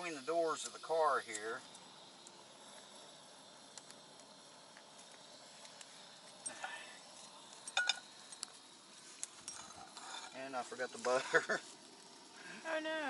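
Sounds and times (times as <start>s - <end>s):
faint outdoor background: 0.0s - 13.0s
frying pan clinking on stove: 7.8s - 8.0s.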